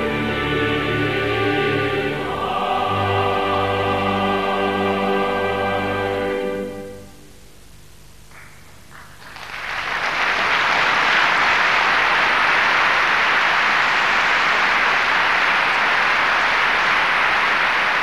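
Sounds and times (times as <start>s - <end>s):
audience applauding: 8.3s - 18.0s.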